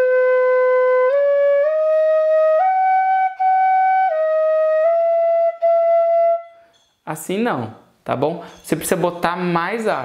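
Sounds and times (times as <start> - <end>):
fife playing long notes: 0.0 - 6.7.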